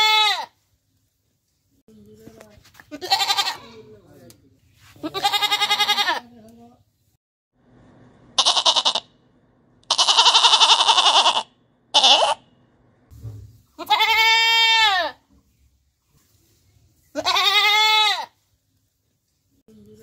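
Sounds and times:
goats bleating: 0.0s - 0.5s, 2.9s - 3.8s, 5.0s - 6.2s, 8.4s - 9.0s, 9.9s - 12.4s, 13.8s - 15.2s, 17.2s - 18.4s.

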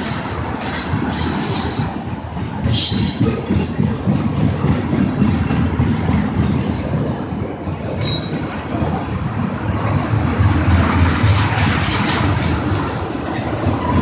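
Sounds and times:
train wheels rumbling on rails: 0.0s - 14.0s
high wheel squeal: 7.1s - 8.5s.

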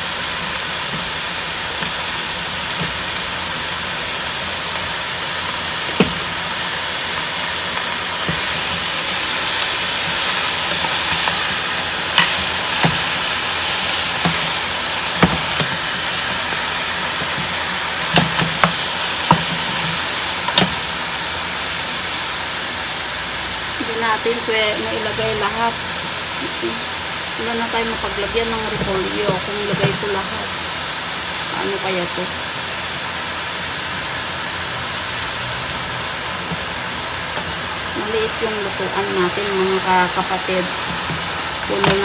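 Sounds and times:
meat sizzling in a pot: 0.0s - 42.0s
spatula knocking against pot: 41.8s - 42.0s.

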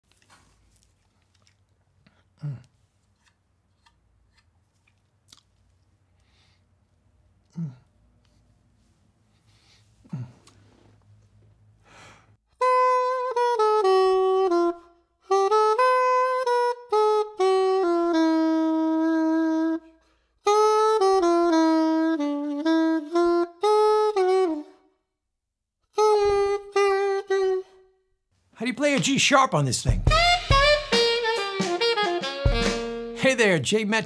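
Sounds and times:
breath: 6.2s - 6.7s, 9.3s - 10.9s, 11.8s - 12.4s, 19.9s - 20.4s
reedy wind instrument melody: 12.6s - 24.8s, 25.9s - 27.8s, 30.0s - 33.3s.

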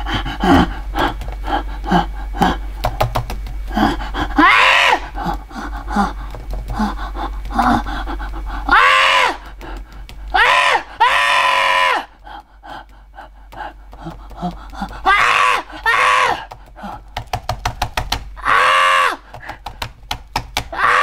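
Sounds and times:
laptop keyboard typing: 2.4s - 3.9s, 5.2s - 11.1s, 12.2s - 18.4s, 19.2s - 21.0s.

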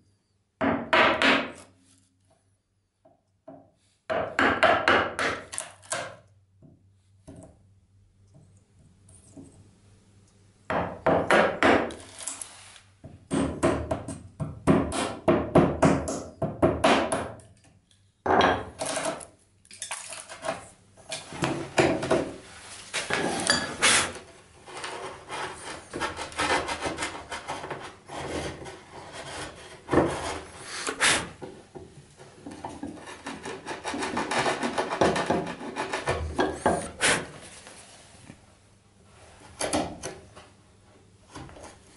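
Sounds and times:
chisel paring wood: 0.6s - 1.7s, 4.1s - 6.2s, 10.7s - 12.1s, 13.3s - 17.5s, 24.8s - 27.8s, 32.4s - 37.0s.

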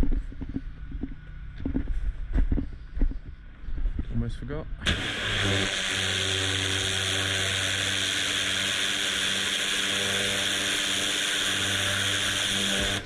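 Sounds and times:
low hum: 0.0s - 13.0s
pressure washer water jet hissing: 4.8s - 13.0s.

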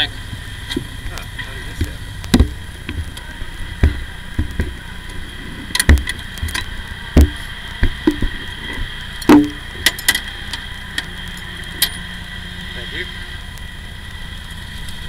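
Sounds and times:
faint high whine: 0.0s - 15.0s
camera knocks and thumps: 1.8s - 3.1s, 3.8s - 4.8s, 5.8s - 6.6s, 7.2s - 8.4s.

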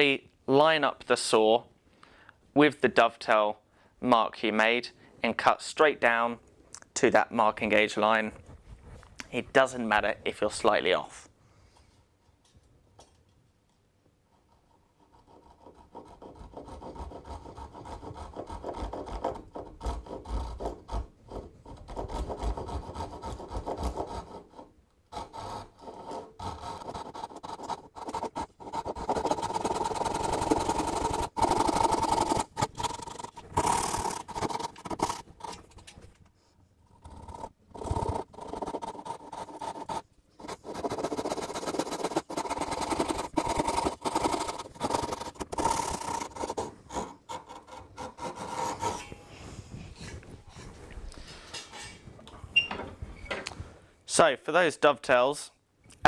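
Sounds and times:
hand saw rasping through wood: 15.2s - 35.6s, 37.1s - 49.2s.

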